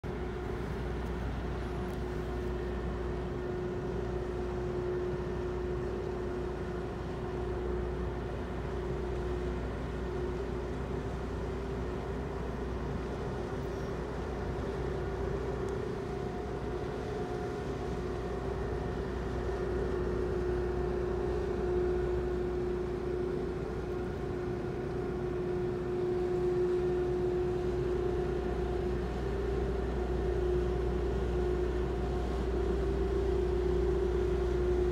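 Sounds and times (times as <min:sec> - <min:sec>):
ship engines droning: 0:00.1 - 0:34.9.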